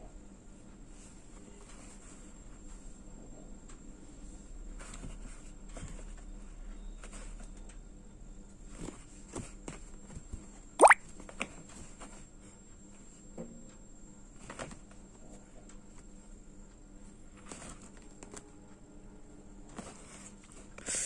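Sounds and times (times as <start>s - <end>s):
scrapes and rustles: 17.3s - 18.4s.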